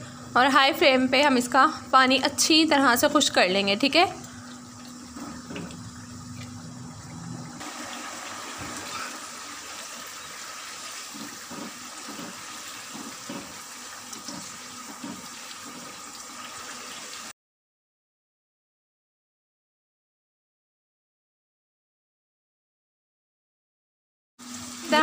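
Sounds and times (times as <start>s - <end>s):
mince sizzling in a pan: 7.6s - 17.3s, 24.4s - 25.0s
spoon knocking while stirring: 11.2s - 13.6s, 14.2s - 15.9s.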